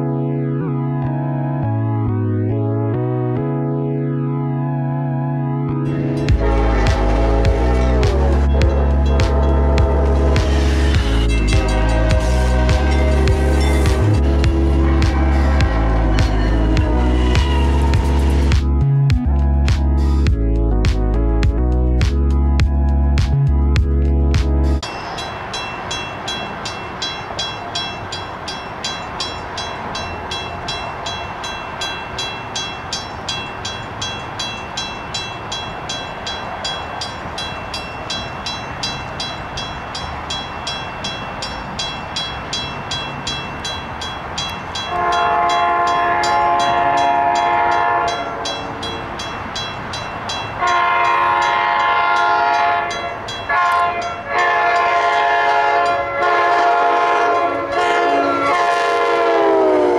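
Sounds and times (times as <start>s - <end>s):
crossing bell ringing: 5.7s - 18.6s, 24.8s - 59.6s
train horn blasts: 5.8s - 18.5s, 44.8s - 49.2s, 50.6s - 59.9s.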